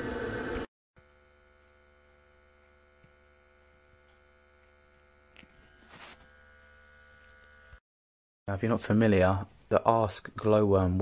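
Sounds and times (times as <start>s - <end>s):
gas boiler rushing: 0.0s - 0.7s.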